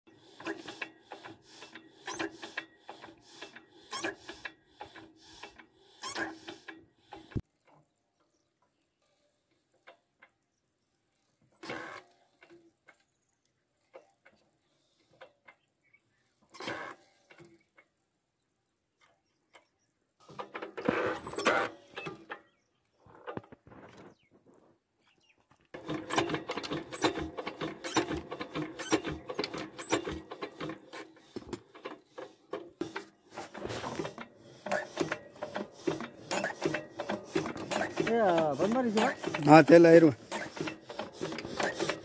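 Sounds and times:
engine mechanical clicking: 0.1 - 7.8, 25.8 - 42.0.

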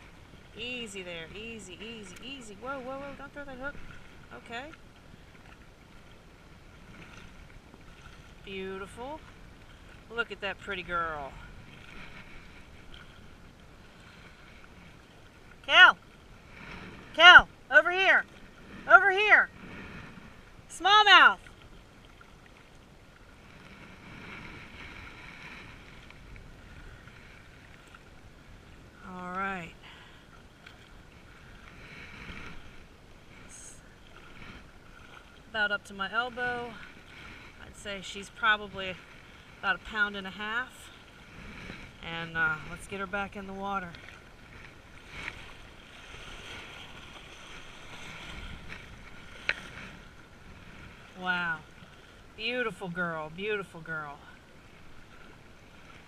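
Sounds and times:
water lapping against rocks: 0.0 - 56.0
wind on microphone: 38.6 - 52.5.

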